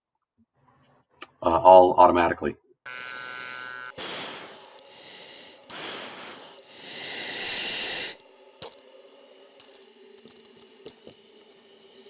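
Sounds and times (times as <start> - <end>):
steady hum: 2.9 - 12.0
rushing hiss: 4.0 - 8.2.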